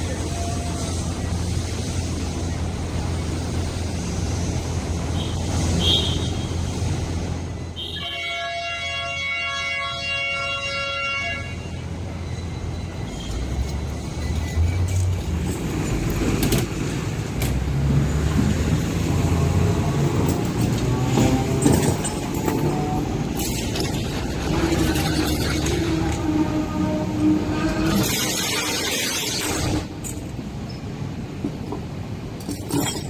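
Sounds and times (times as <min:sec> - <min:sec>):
street traffic rumble: 0:00.0 - 0:33.0
tram passing: 0:00.0 - 0:33.0
long vehicle horn: 0:05.2 - 0:06.6, 0:07.8 - 0:11.9, 0:25.8 - 0:28.1.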